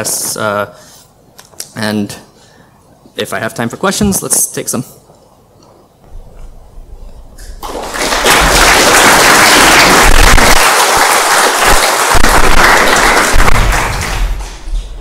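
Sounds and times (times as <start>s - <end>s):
audience applauding: 7.6s - 14.7s.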